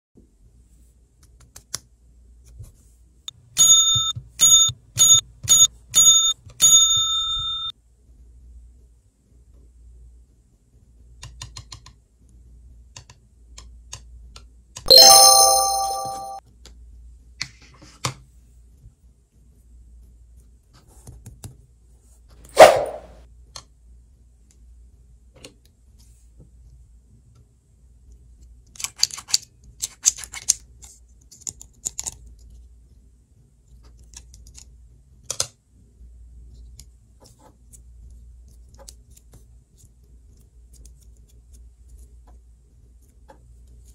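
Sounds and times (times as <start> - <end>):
toy wand electronic chime: 5.6 - 7.7, 14.9 - 16.4
faint clicks of handling clay: 36.5 - 43.9.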